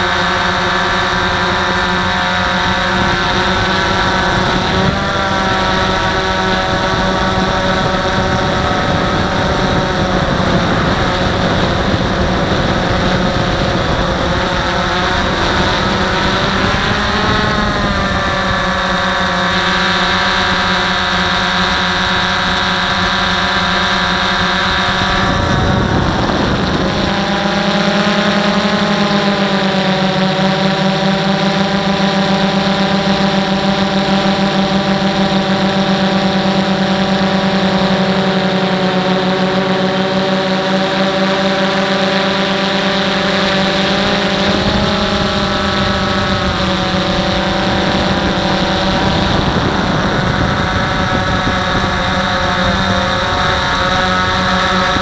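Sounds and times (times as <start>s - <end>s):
drone motors and propellers whining: 0.0s - 55.0s.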